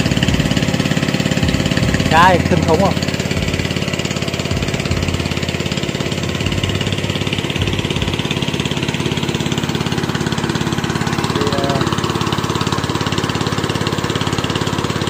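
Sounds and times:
engine-driven water pump running: 0:00.0 - 0:15.0.

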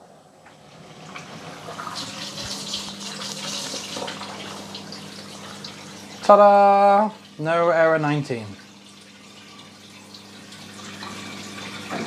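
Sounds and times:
dishwasher water rushing hiss: 0:00.0 - 0:07.0, 0:09.4 - 0:12.0
dishwasher low hum: 0:00.0 - 0:12.0.

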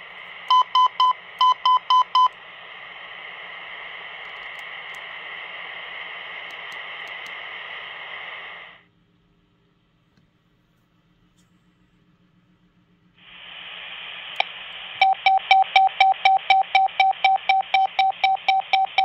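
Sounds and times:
radio static hiss: 0:00.0 - 0:08.9, 0:13.2 - 0:15.4.

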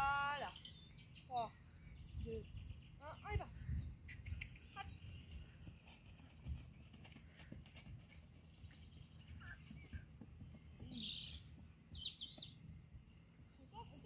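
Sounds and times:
faint bird chirp: 0:00.3 - 0:06.3, 0:07.1 - 0:14.0
wind rumble on microphone: 0:02.0 - 0:05.6
horse hooves on grass: 0:04.6 - 0:14.0.

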